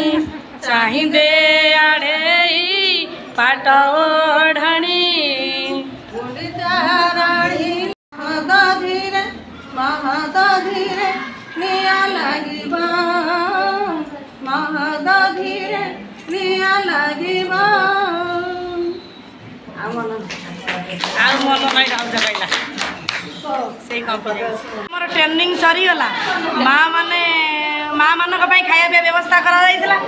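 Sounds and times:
women singing unaccompanied: 0.0s - 19.1s, 26.4s - 30.0s.

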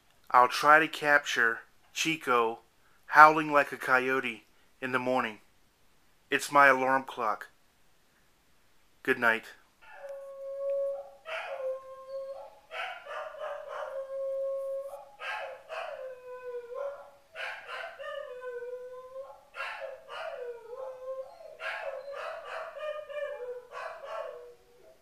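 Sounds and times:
dog howling and yipping: 9.8s - 25.0s.

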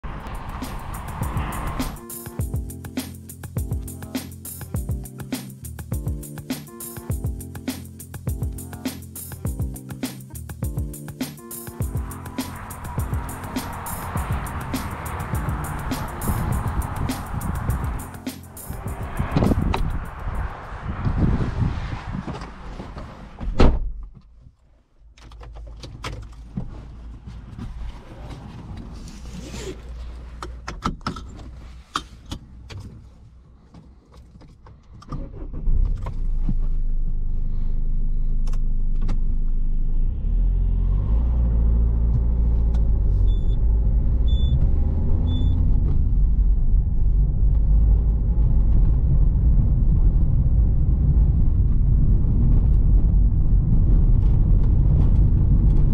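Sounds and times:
diesel engine starting and running: 0.0s - 4.5s, 10.0s - 23.4s, 35.0s - 55.9s.

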